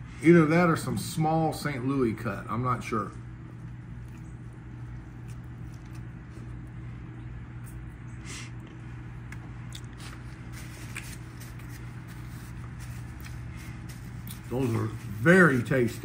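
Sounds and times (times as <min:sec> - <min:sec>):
steady low hum: 0:00.0 - 0:16.0
man chewing: 0:03.4 - 0:14.6.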